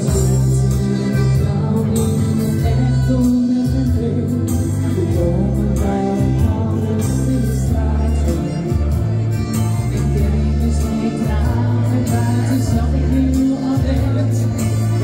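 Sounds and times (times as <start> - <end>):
pop song through pa system: 0.0 - 15.0.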